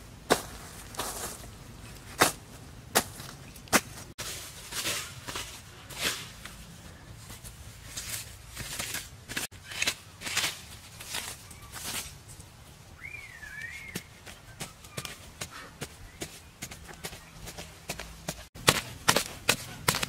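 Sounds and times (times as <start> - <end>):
machete chopping grass and soil: 0.3 - 1.4, 2.1 - 6.6, 8.0 - 12.1, 16.6 - 20.0.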